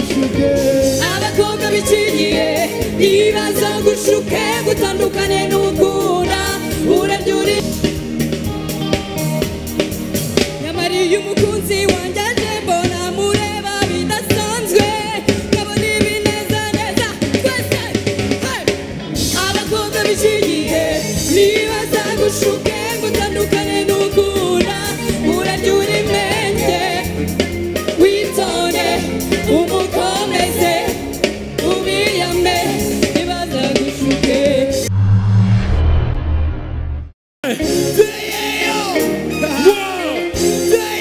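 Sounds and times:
person singing: 0.0 - 7.7
live band music: 0.0 - 34.9, 37.4 - 41.0
drum kit: 0.0 - 36.8.

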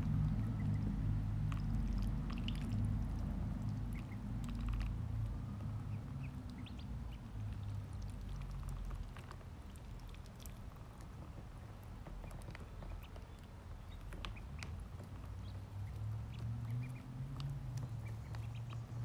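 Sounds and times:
ducklings peeping: 0.0 - 19.0
steady low hum: 0.0 - 19.0.

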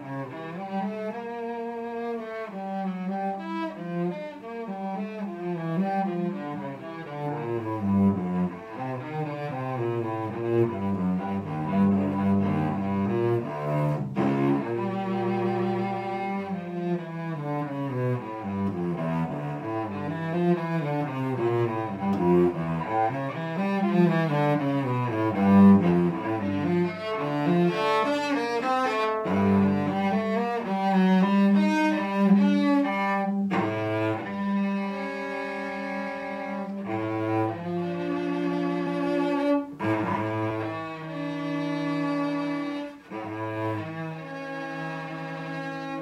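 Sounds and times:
bowed cello: 0.0 - 46.0.

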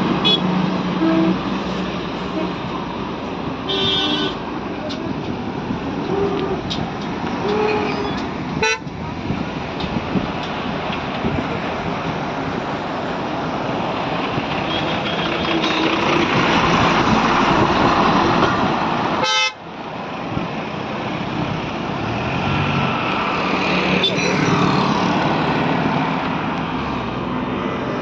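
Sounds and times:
heavy road traffic: 0.0 - 28.0
vehicle horns tooting: 0.2 - 1.4, 3.6 - 4.4, 7.4 - 8.9, 14.6 - 16.1, 19.2 - 19.6.

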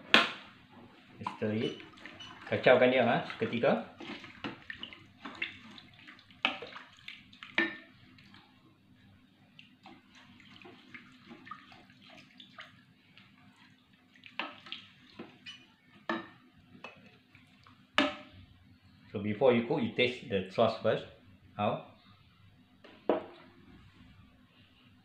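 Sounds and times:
liquid sloshing in pot: 0.9 - 18.4.

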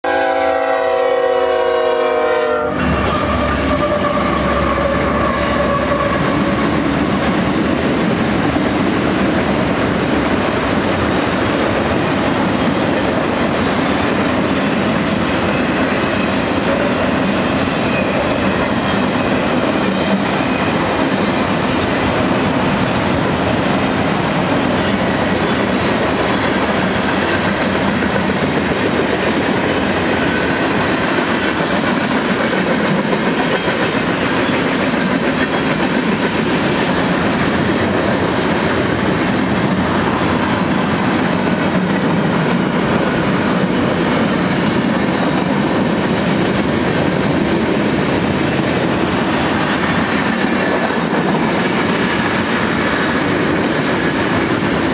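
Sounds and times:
train horn chord: 0.0 - 6.6
freight train rolling past: 0.0 - 54.9.

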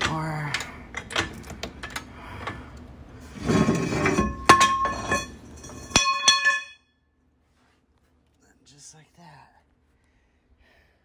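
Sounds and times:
metal clinking: 4.1 - 6.9.

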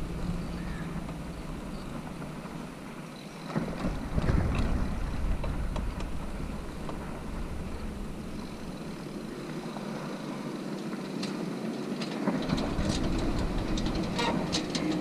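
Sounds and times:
bicycle rattles and knocks: 0.0 - 9.1, 11.1 - 15.0
wind on microphone: 0.0 - 9.9
bicycle tyres rumbling on road: 0.0 - 15.0.

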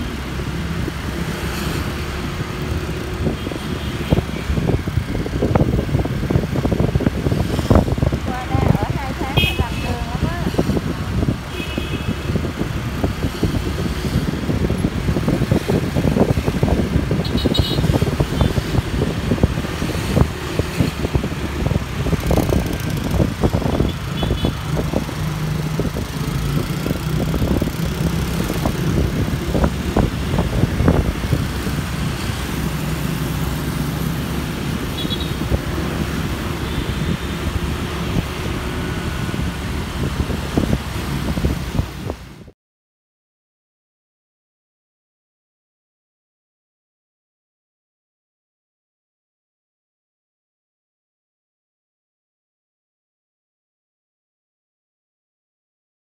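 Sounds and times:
scooter and car engines: 0.0 - 42.5
air rushing over microphone: 12.1 - 42.4.

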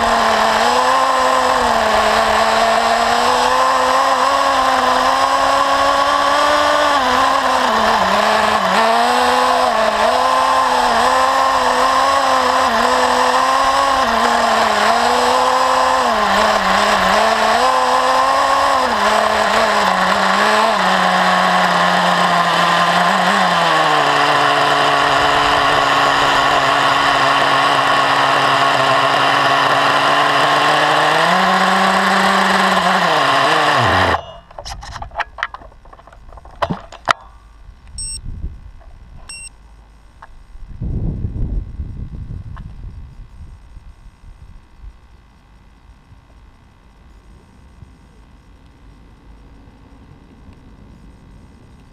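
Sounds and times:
rc car nitro engine revving: 0.0 - 37.2.

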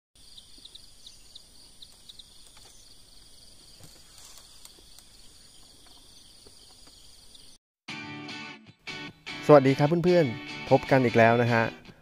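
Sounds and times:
insects chirring: 0.2 - 7.6.

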